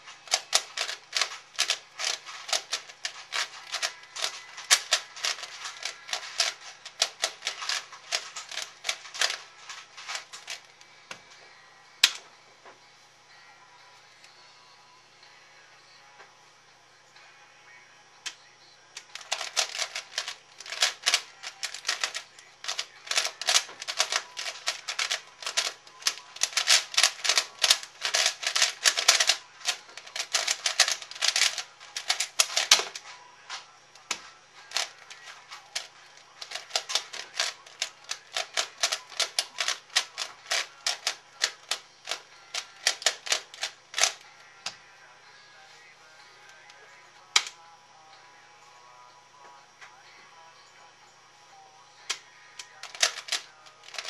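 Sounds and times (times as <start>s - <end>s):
puzzle cube clicking: 0.2s - 10.7s, 19.0s - 33.0s, 34.0s - 44.2s, 52.1s - 54.0s.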